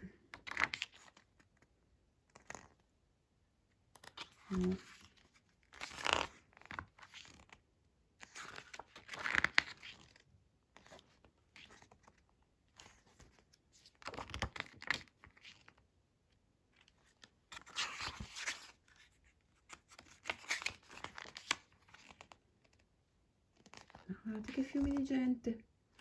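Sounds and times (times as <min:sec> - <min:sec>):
book pages turning: 0:00.4 - 0:01.7, 0:02.3 - 0:02.8, 0:03.9 - 0:07.6, 0:08.2 - 0:15.9, 0:16.8 - 0:22.9, 0:23.5 - 0:25.0.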